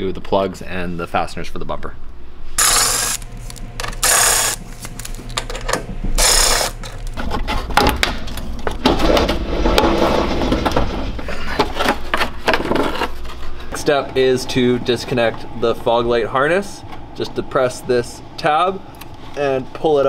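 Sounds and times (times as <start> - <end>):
cordless driver whirring: 2.6 - 7.2
plastic rustling and scraping: 6.8 - 13.7.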